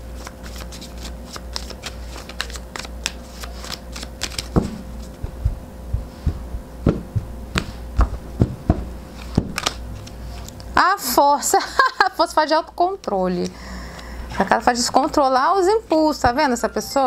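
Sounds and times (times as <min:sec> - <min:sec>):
cards shuffling: 0:00.1 - 0:05.3, 0:09.1 - 0:10.6
cards snapping: 0:00.2 - 0:04.6, 0:09.2 - 0:10.7.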